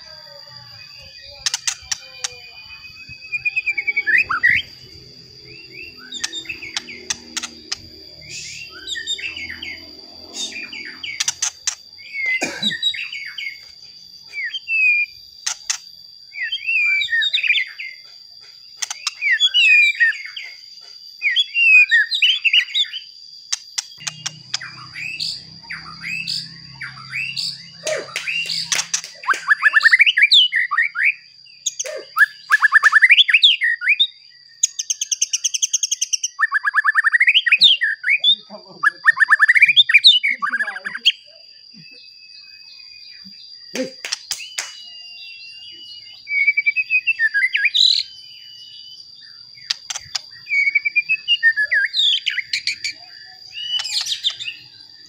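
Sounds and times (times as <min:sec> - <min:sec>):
steady high-pitched tone: 0:00.0 - 0:12.7
bird singing whistles and trills: 0:00.0 - 0:55.0.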